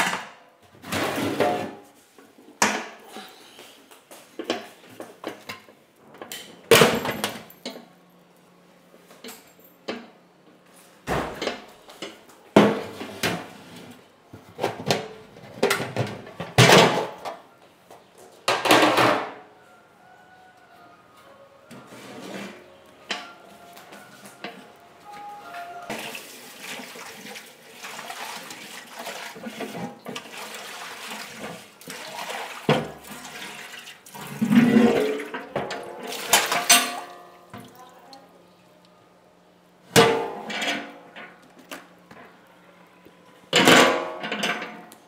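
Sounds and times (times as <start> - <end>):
pots and dishes clattering: 18.5 - 19.4, 32.6 - 37.7, 39.9 - 41.4, 43.6 - 45.0
water running from tap: 25.9 - 34.4.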